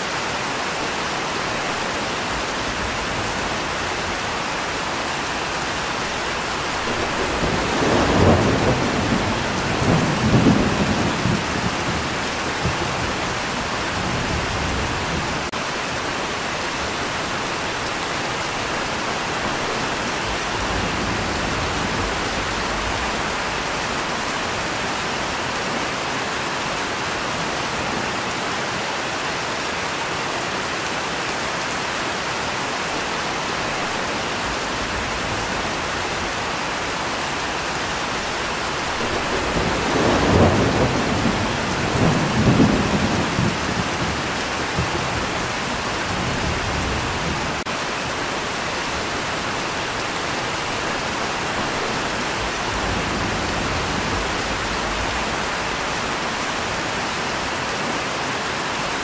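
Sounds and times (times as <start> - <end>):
steady rain: 0.0 - 59.0
low thunder rumble: 6.7 - 15.5, 38.7 - 47.6.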